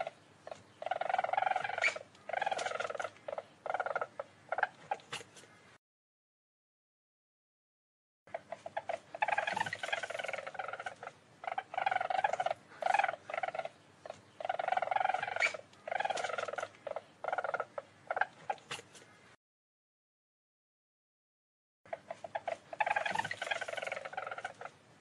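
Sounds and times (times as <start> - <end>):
weasel chattering trills: 0.0 - 5.4, 8.3 - 19.0, 21.9 - 25.0.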